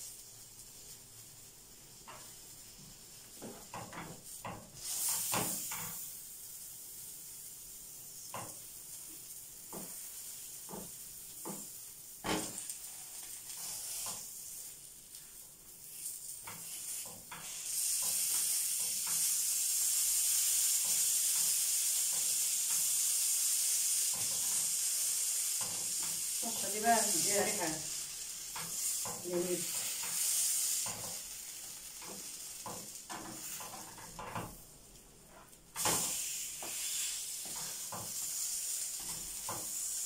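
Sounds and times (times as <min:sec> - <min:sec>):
food sizzling in a frying pan: 0:00.0 - 0:40.0
metal spatula scraping a pan: 0:12.2 - 0:14.7, 0:15.9 - 0:19.4, 0:25.5 - 0:31.3, 0:31.9 - 0:34.5, 0:35.3 - 0:40.0.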